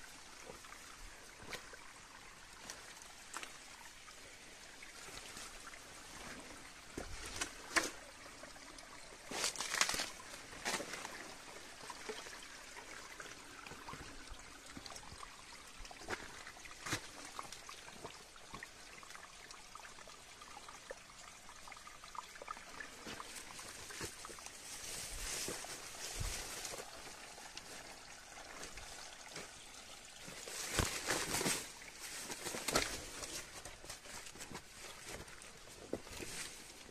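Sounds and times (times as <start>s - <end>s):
stream trickling: 0.0s - 36.9s.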